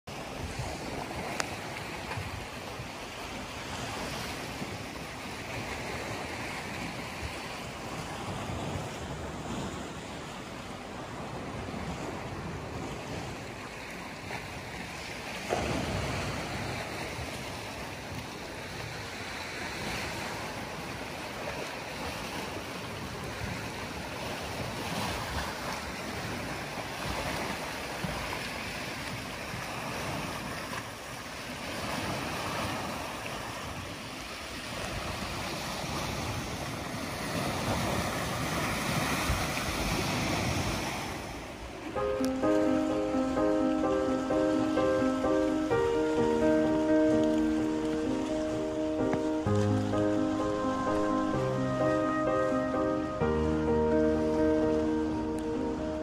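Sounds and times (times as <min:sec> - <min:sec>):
sea waves splashing on rocks: 0:13.2 - 0:41.9.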